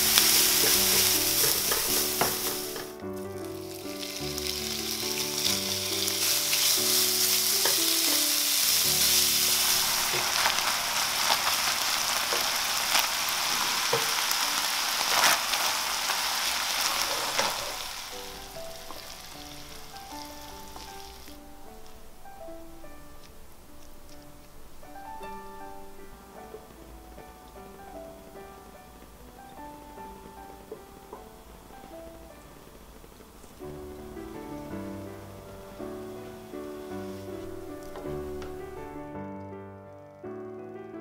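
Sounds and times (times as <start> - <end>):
beef sizzling in a frying pan: 0.0 - 21.9, 33.6 - 39.1.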